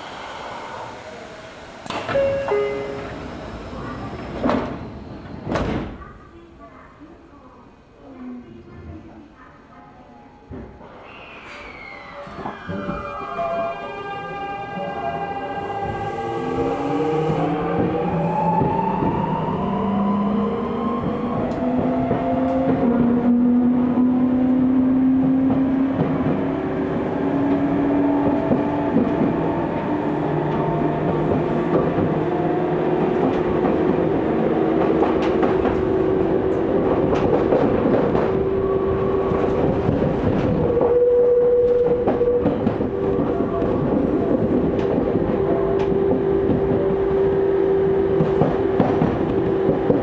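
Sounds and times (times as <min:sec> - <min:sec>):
wheels rumbling on rail: 0:14.5 - 0:50.0
clacks over rail joints: 0:48.1 - 0:50.0.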